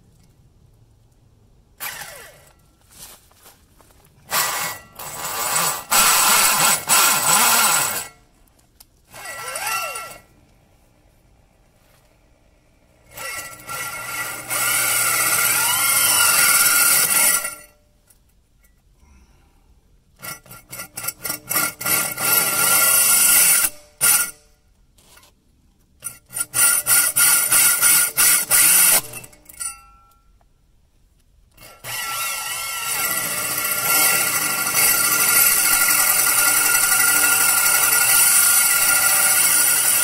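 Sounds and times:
hand saw cutting rubber: 0:04.2 - 0:08.2, 0:09.1 - 0:10.3, 0:13.1 - 0:17.7, 0:20.2 - 0:24.4, 0:26.0 - 0:29.4, 0:31.6 - 0:40.0.

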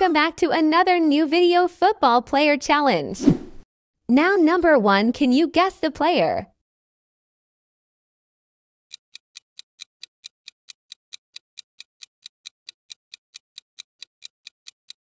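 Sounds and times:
clock ticking: 0:08.9 - 0:15.0.

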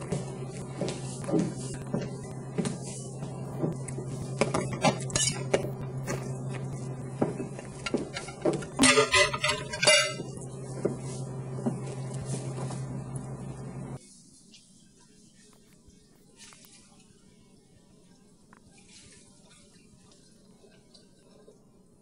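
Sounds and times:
steady low hum: 0:00.0 - 0:14.0
dishes and cutlery clattering: 0:07.8 - 0:10.3.

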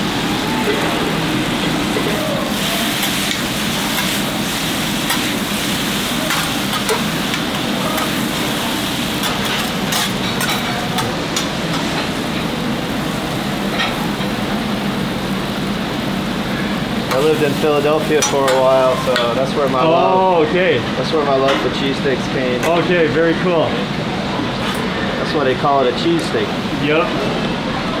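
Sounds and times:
meat sizzling: 0:00.9 - 0:14.2.

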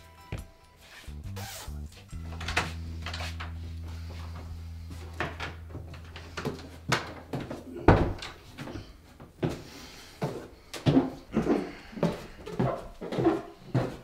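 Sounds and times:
low music drone: 0:01.1 - 0:09.2
footstep on stairs: 0:06.4 - 0:11.3, 0:12.0 - 0:14.0.

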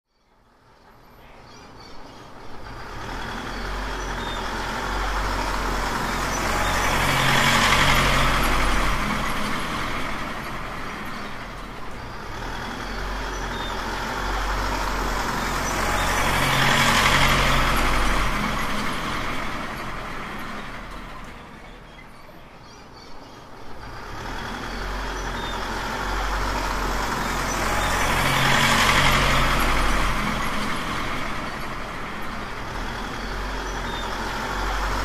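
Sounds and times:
truck engine drone: 0:00.6 - 0:22.6, 0:23.3 - 0:35.0.

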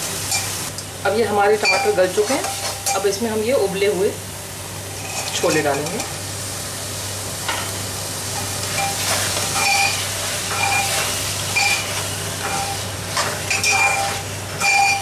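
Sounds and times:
masala sizzling in a pot: 0:00.0 - 0:15.0
spoon scraping a pot: 0:08.8 - 0:15.0.

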